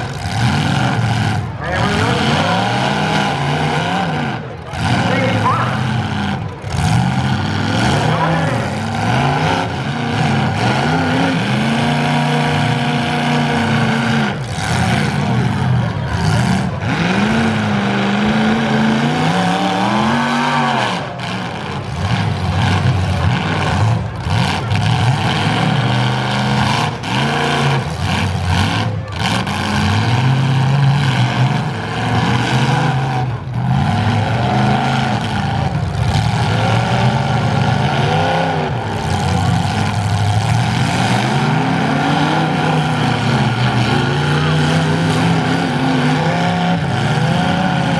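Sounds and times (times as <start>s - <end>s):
car engines revving: 0.0s - 47.9s.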